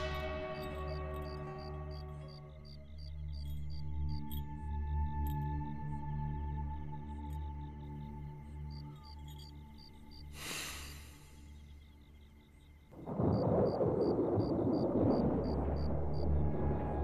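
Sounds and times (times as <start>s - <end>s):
soft music: 0.0s - 13.1s, 15.2s - 17.0s
brief high hiss: 10.4s - 11.3s
thunder rumbling: 12.9s - 17.0s.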